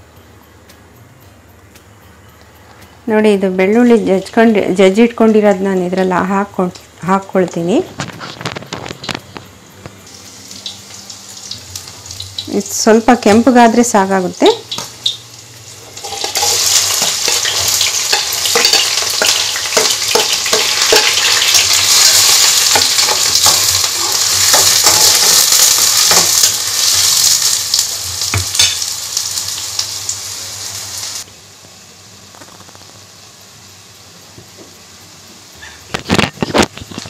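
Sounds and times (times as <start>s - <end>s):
onions sizzling in hot oil: 3.3s - 37.0s
low hiss: 8.9s - 18.6s.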